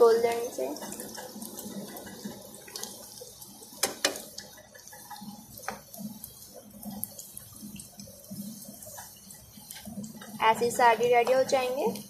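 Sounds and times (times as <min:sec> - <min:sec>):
deep-frying sizzle in oil: 0:00.0 - 0:12.0
spoon knocking against pan: 0:03.8 - 0:04.3.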